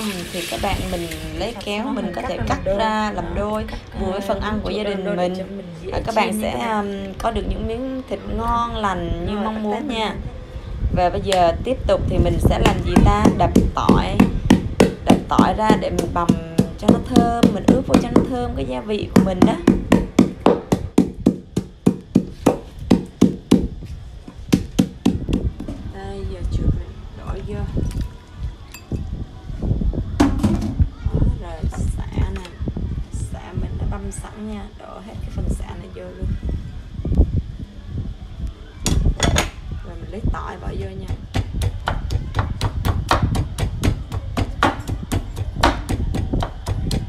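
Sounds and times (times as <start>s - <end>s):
mallet pounding on wooden board: 12.6s - 18.4s, 19.1s - 23.7s, 24.5s - 25.5s, 41.1s - 47.0s.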